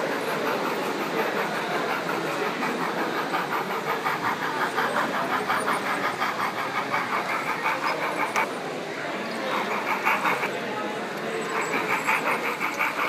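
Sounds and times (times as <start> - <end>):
background noise: 0.0 - 13.0
model steam locomotive chuffing: 0.0 - 13.0.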